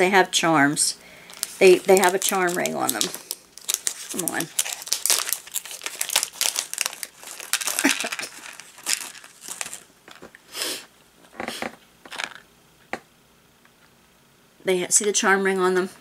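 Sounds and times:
plastic packaging crinkling: 1.2s - 10.4s, 12.1s - 12.4s
plastic rustles: 1.2s - 10.4s.

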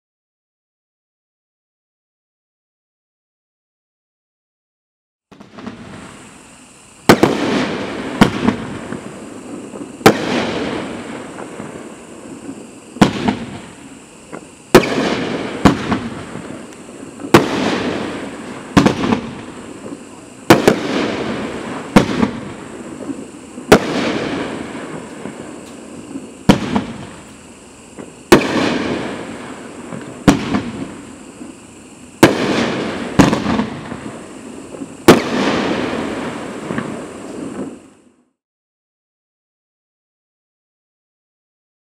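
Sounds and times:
firework bangs with rumble: 7.1s - 11.8s, 12.4s - 27.2s, 28.0s - 31.1s, 32.2s - 37.8s.

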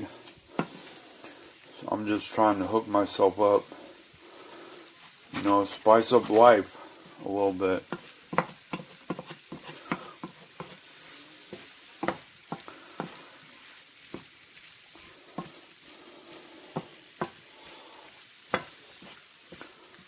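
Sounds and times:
chicken sizzling in a frying pan: 0.0s - 20.0s
utensil knocking and scraping pan: 7.8s - 10.8s, 11.5s - 13.2s.

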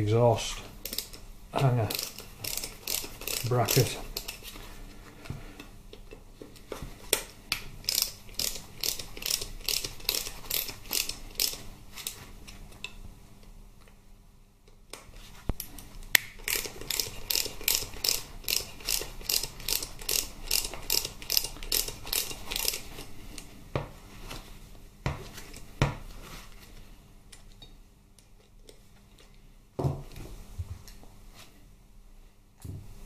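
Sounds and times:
ratchet wrench clicking: 1.8s - 4.4s, 7.8s - 11.6s, 16.4s - 23.1s.

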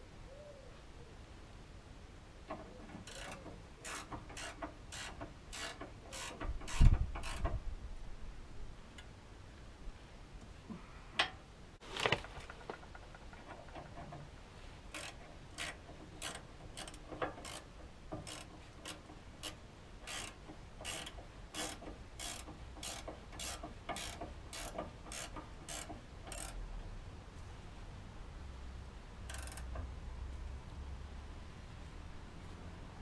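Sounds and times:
ratchet wrench clicking: 3.0s - 7.6s, 14.9s - 26.6s, 29.2s - 29.8s.

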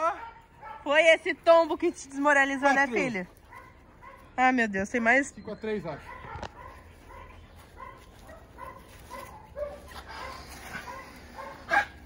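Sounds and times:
dog barking: 0.0s - 1.0s, 3.5s - 4.3s, 5.9s - 12.0s.

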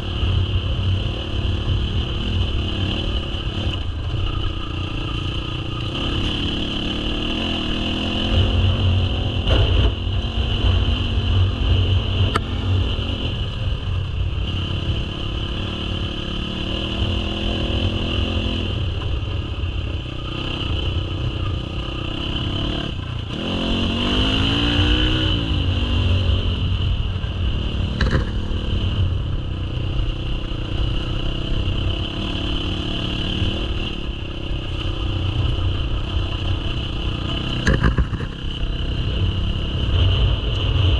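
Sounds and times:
dirt bike engine revving: 0.0s - 13.4s, 20.1s - 26.7s
sharp knocks from rough ground: 28.0s - 28.4s, 37.6s - 38.4s.

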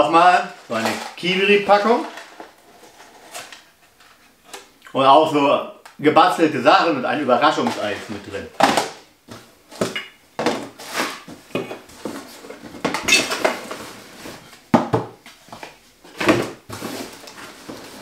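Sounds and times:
small hard objects clattering: 0.6s - 2.4s, 7.5s - 8.9s
rustling: 15.3s - 18.0s.

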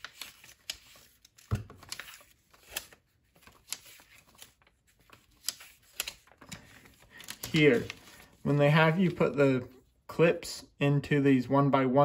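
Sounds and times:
paper pages flipping: 0.0s - 9.4s.

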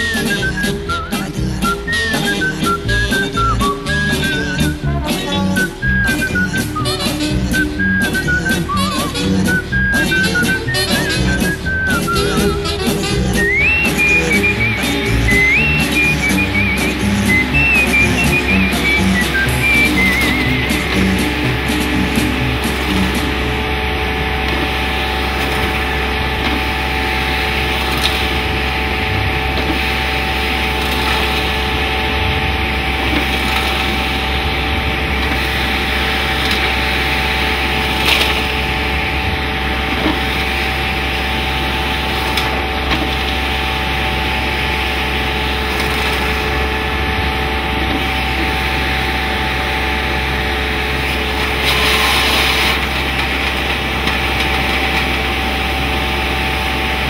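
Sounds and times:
fan hum: 0.0s - 57.0s
debris knocking in hose: 12.8s - 49.5s.

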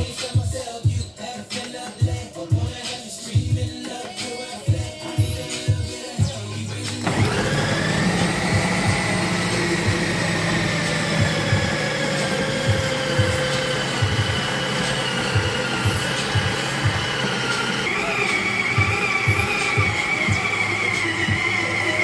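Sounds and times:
food processor motor whining: 6.9s - 22.0s.

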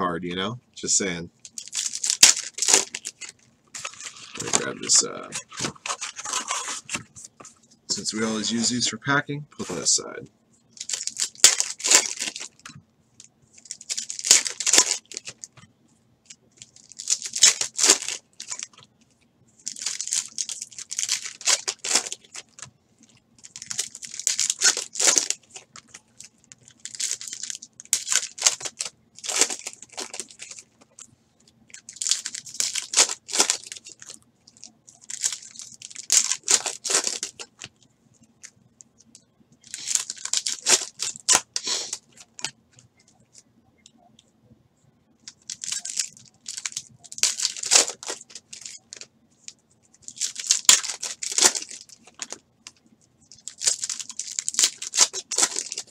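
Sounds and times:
foil card packs tearing open: 1.5s - 7.0s, 10.8s - 12.6s, 13.7s - 15.4s, 16.6s - 18.7s, 19.6s - 22.6s, 23.4s - 25.9s, 26.6s - 30.7s, 31.8s - 34.2s, 35.0s - 37.6s, 39.7s - 42.5s, 45.3s - 49.0s, 50.1s - 52.4s, 53.4s - 55.9s.

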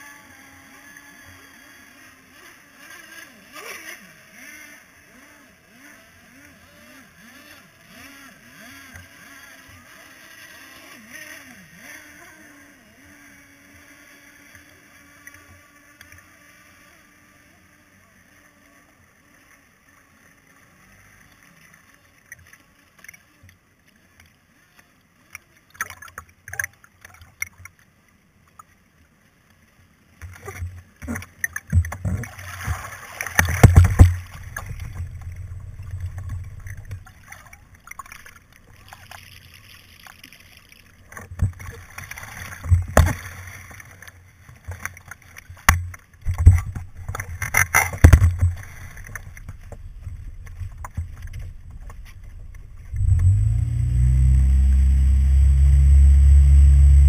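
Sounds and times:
water splashing: 25.7s - 27.8s, 30.2s - 57.0s
faint clicks: 33.2s - 53.4s.

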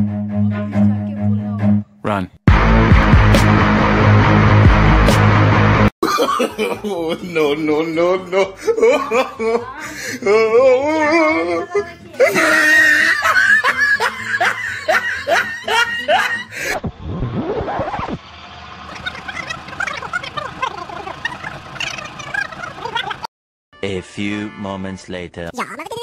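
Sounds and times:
girls laughing: 6.0s - 16.8s
girls chattering: 8.9s - 13.2s.

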